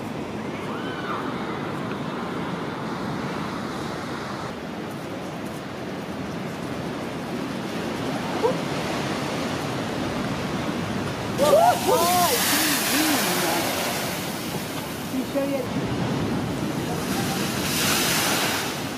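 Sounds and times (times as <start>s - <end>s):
wind: 0.0s - 18.9s
waves breaking against seawall: 7.3s - 18.9s.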